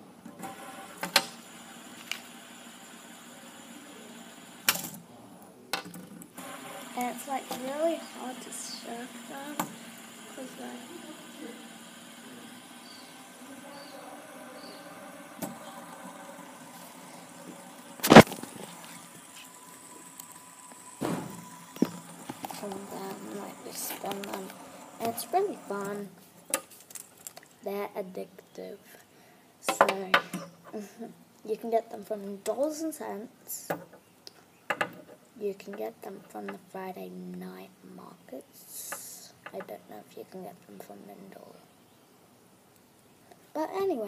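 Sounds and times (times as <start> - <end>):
fidget spinners whirring: 0.4 - 5.1, 6.1 - 27.8.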